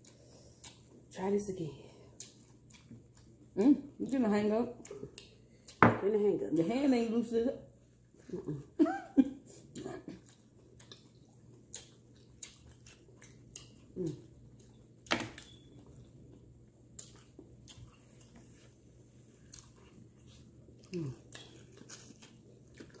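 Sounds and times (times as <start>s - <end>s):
chewing and biting: 2.1s - 3.5s, 9.7s - 23.0s.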